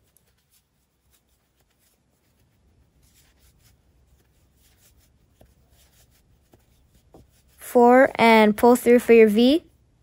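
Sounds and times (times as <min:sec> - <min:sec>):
yarn rustling over crochet hook: 0:00.0 - 0:07.6.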